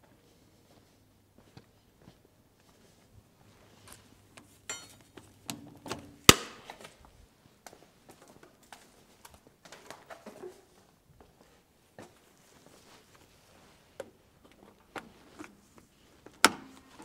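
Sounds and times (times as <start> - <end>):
steel tools clinking: 4.6 - 5.1
ringing metal clank: 4.7 - 5.0.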